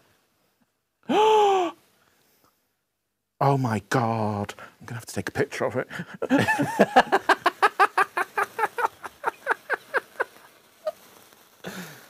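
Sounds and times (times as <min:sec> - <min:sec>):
man laughing hard: 0:06.1 - 0:11.0.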